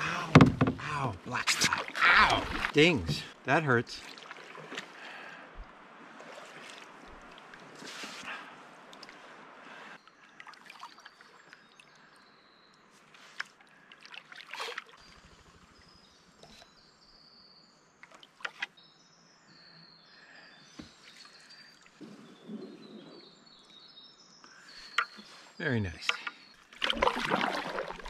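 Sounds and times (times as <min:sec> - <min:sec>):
paddle knocking against canoe: 0:00.0 - 0:01.0
water dripping off paddle: 0:04.0 - 0:08.2, 0:08.9 - 0:09.2, 0:26.0 - 0:28.0.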